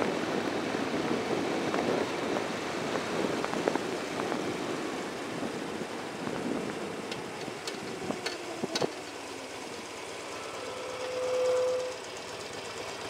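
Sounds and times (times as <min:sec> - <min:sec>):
passing air noise: 0:00.0 - 0:12.2
motorcycle engine running: 0:00.0 - 0:13.0.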